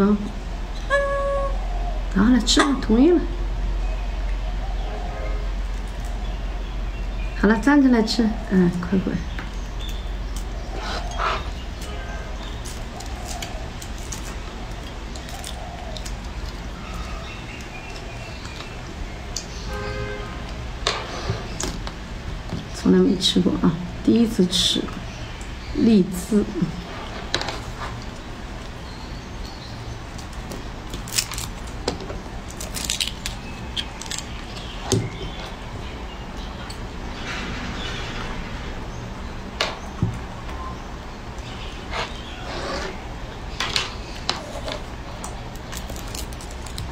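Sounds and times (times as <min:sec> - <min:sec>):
low steady hum: 0:00.0 - 0:37.4
lychee shells snapping: 0:30.2 - 0:34.8, 0:45.2 - 0:46.9.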